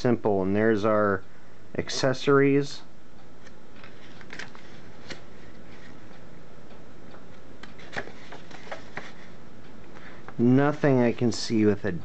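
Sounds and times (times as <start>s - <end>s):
steady low hum: 0.0s - 12.0s
paper pages turning: 3.8s - 6.0s, 7.6s - 9.3s.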